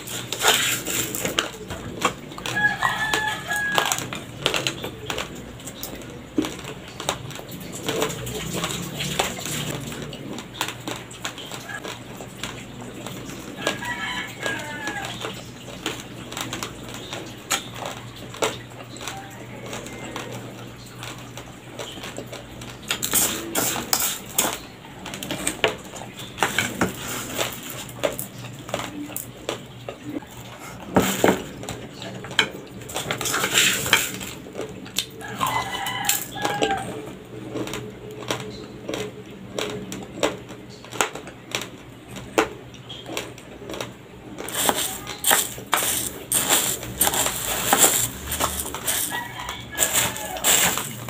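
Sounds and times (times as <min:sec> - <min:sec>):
spoon scooping rice in plastic bag: 0:00.0 - 0:04.0, 0:44.4 - 0:51.0
chewing raw rice crunches: 0:42.9 - 0:51.0.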